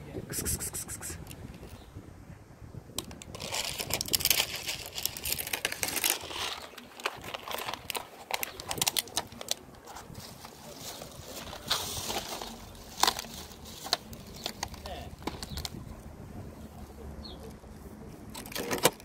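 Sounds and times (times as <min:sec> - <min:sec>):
plastic bag crinkling: 0:03.3 - 0:09.6.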